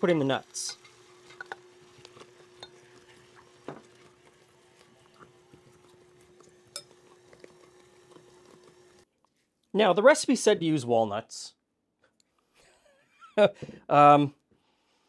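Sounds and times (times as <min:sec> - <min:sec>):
stand mixer humming: 0:00.8 - 0:09.0.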